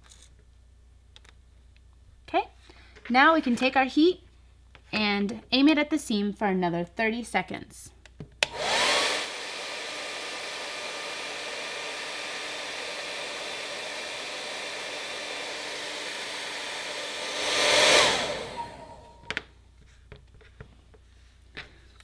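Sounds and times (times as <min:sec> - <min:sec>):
hair dryer running: 0:08.4 - 0:19.5.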